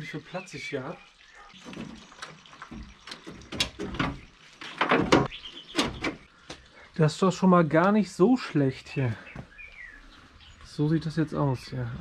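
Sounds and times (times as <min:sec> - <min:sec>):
metal panel clunking and scraping: 0:02.7 - 0:06.3.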